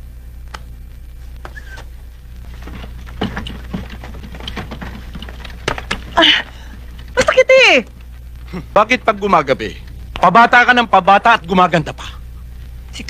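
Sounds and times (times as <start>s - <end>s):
low hum: 0.0s - 13.0s
film clicks and knocks: 2.5s - 8.2s.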